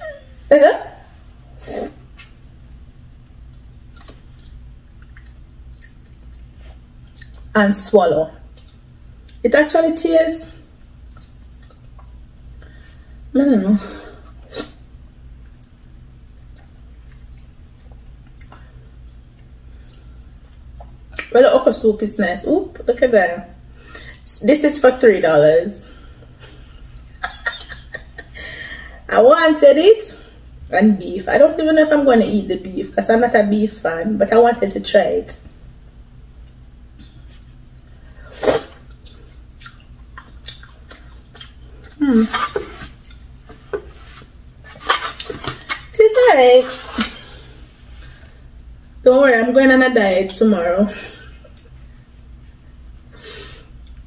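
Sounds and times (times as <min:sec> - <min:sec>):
steady low hum: 0:00.0 - 0:54.0
wet mouth eating sounds: 0:03.8 - 0:07.5, 0:38.4 - 0:45.9.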